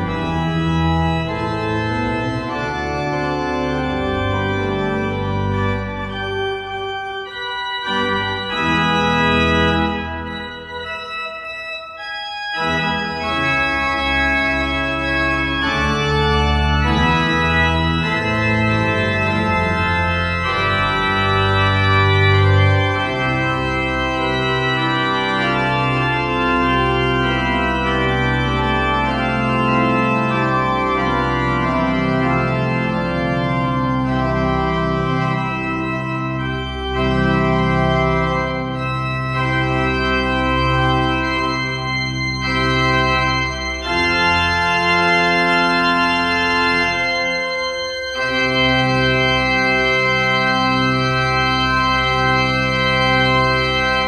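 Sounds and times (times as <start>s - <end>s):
church organ chords: 0.0s - 54.0s.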